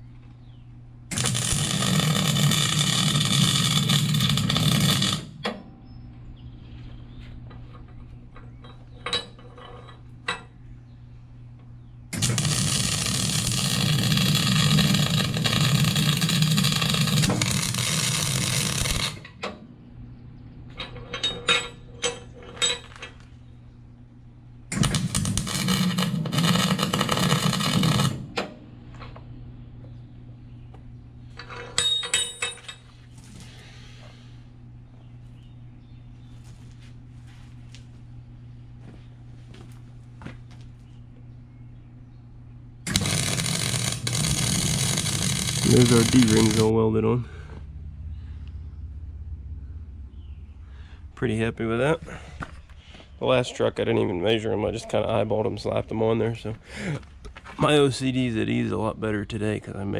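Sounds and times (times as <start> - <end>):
welder arc crackling: 1.1 - 5.4, 12.1 - 19.4, 24.7 - 28.4, 42.8 - 46.9.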